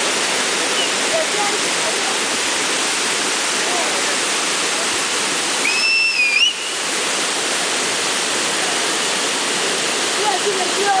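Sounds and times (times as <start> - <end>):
water rushing over rocks: 0.0 - 11.0
high whistle-like tone: 5.6 - 6.8.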